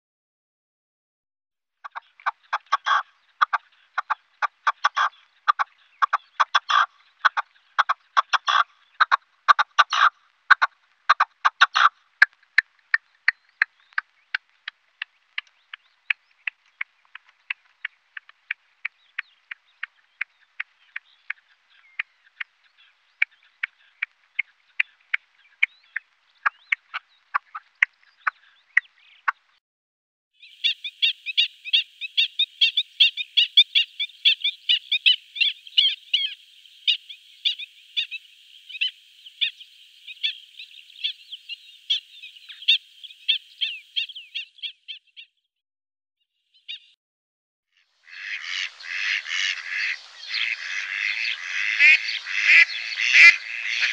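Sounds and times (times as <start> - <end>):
animal clicking calls: 1.8 - 22.6.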